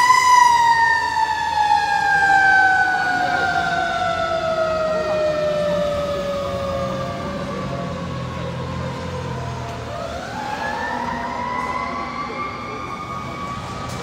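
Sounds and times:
fire truck siren wailing: 0.0 - 14.0
low engine rumble: 1.2 - 14.0.

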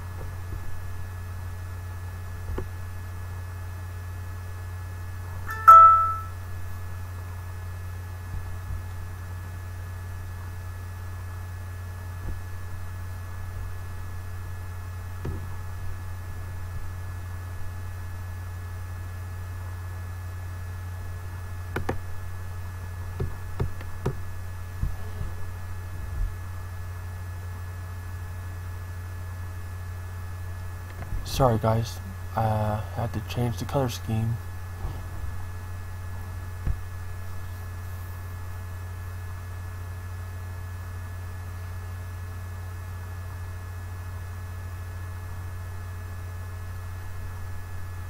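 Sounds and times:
steady low hum: 0.0 - 48.0
short electronic beep: 5.5 - 6.4.

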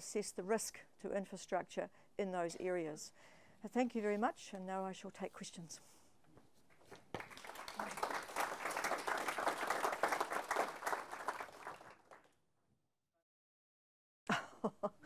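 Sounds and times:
audience applauding: 7.1 - 12.3.

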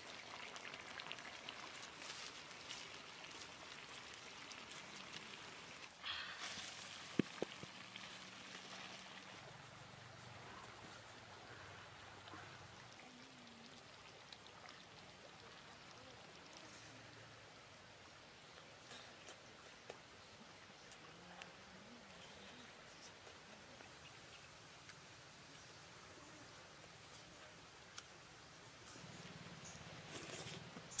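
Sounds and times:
curry bubbling and popping: 0.0 - 9.7, 10.4 - 16.9.

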